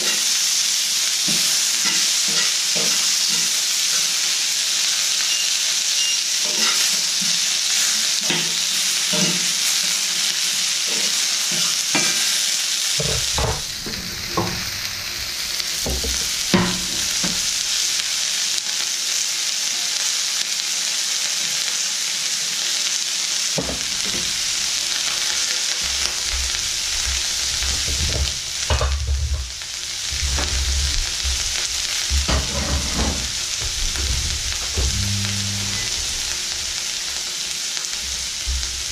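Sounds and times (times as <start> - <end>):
onions sizzling in a pan: 0.0 - 38.9
knocks: 13.0 - 15.0
low rumbles: 13.0 - 17.8, 25.9 - 36.8.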